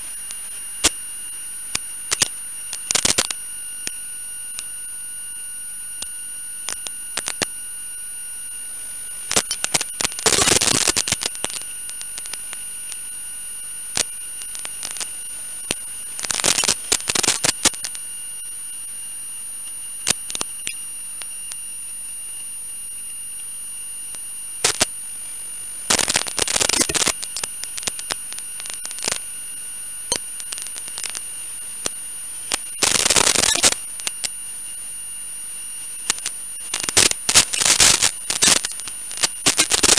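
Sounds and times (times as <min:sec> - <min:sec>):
crackling static bursts: 0:00.0 - 0:39.9
scattered clicks: 0:01.7 - 0:04.7, 0:31.8 - 0:34.3, 0:36.1 - 0:39.9
steady electrical hiss: 0:24.2 - 0:34.6, 0:35.3 - 0:39.9.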